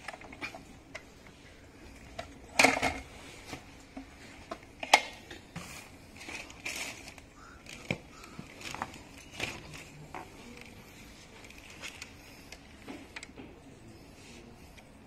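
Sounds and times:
electric scooter rattling and knocking: 2.0s - 10.8s.

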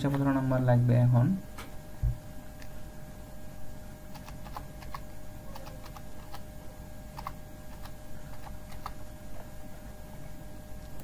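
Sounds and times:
steady background hum: 0.0s - 11.0s
computer keyboard keystrokes: 4.1s - 6.5s, 7.2s - 9.0s.

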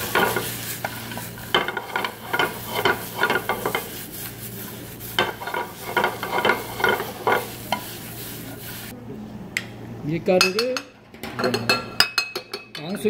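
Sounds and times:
metal spoon scraping a pot: 0.0s - 8.6s
vegetables sizzling in a pot: 0.0s - 9.0s.

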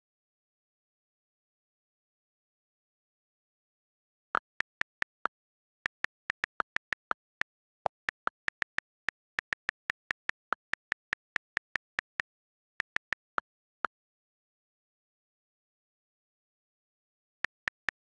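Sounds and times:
on-screen keyboard key clicks: 4.4s - 13.4s.

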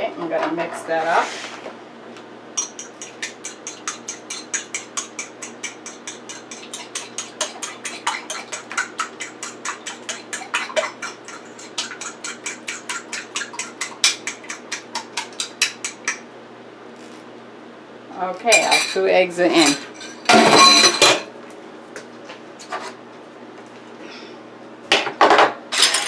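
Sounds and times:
spoon beating eggs in bowl: 2.6s - 16.2s.

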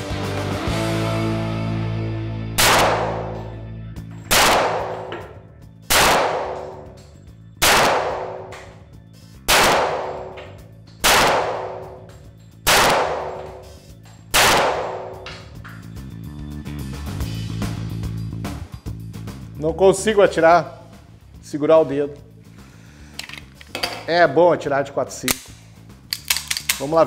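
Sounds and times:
pistol shots echoing: 2.6s - 3.6s, 4.3s - 7.0s, 7.6s - 8.8s, 9.5s - 15.5s.

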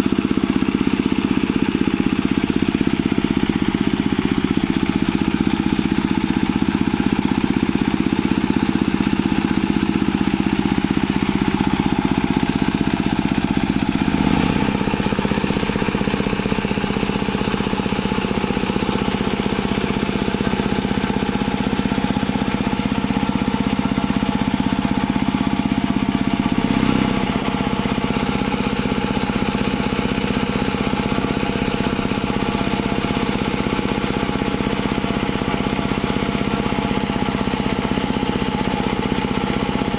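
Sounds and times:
diesel tractor engine running: 0.0s - 39.9s
rotary tiller in water: 0.0s - 39.9s.

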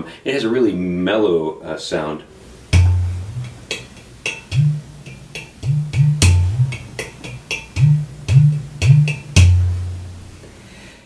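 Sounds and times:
hand drum playing: 2.7s - 10.3s.

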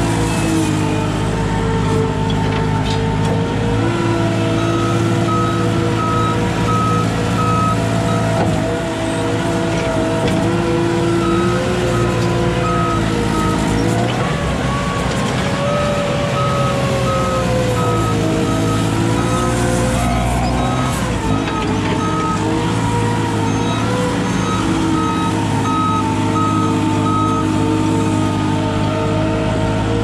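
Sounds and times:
forklift engine running under load: 0.0s - 30.0s
high back-up alarm beeping: 15.8s - 27.6s.

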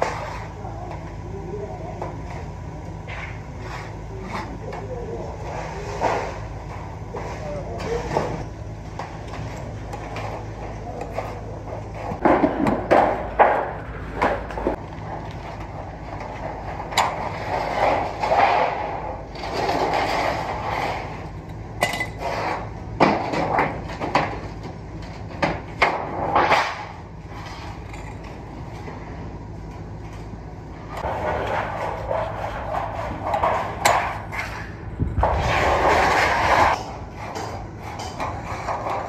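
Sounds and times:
metal sheet rattling: 31.0s - 39.0s.

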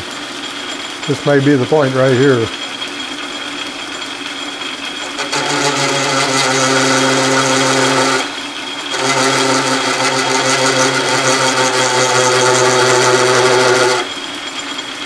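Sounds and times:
metal lathe running: 0.0s - 15.0s
loud pitched cutting buzz: 5.0s - 14.2s.

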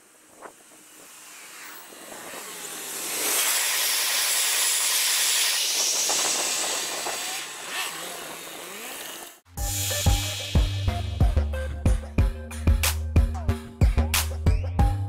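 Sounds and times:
freight train wheels on rails: 0.0s - 8.5s.

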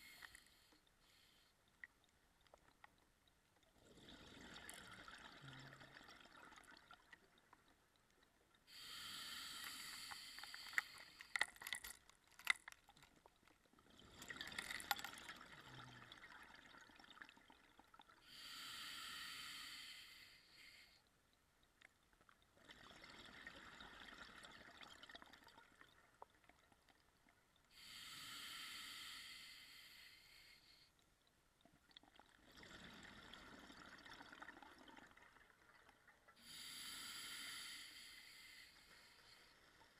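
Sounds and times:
exhaust bubbles gurgling: 3.8s - 7.4s
regulator breath hissing: 8.7s - 11.3s, 18.3s - 20.9s, 27.8s - 30.8s, 36.4s - 39.4s.

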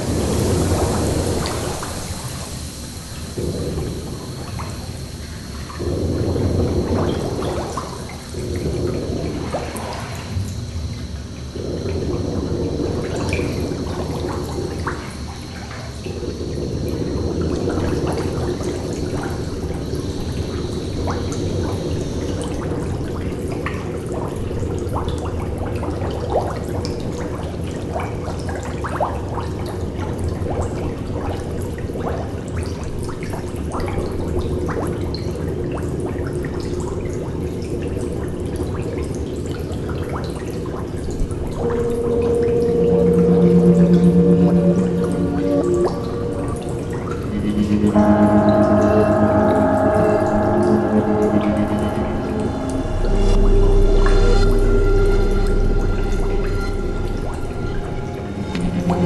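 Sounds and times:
water drips: 0.0s - 59.0s
water running and trickling: 0.0s - 59.0s
faint thin high tone: 41.6s - 59.0s.

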